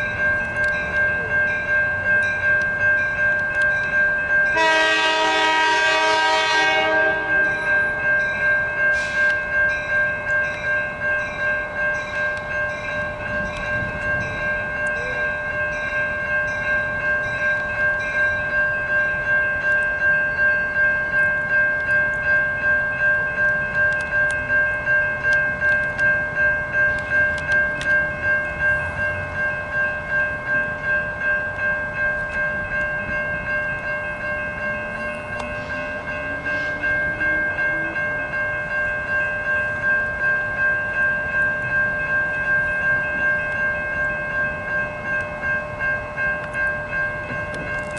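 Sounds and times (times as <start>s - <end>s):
railroad crossing bells ringing: 0.0s - 47.9s
train air horn: 4.6s - 7.4s.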